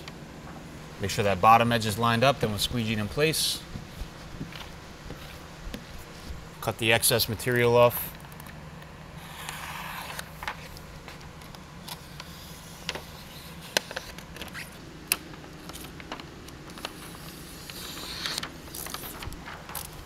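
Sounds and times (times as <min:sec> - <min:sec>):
low steady hum: 0:00.0 - 0:20.0
film rustling: 0:09.5 - 0:20.0
plastic film ticks and crackles: 0:13.7 - 0:20.0.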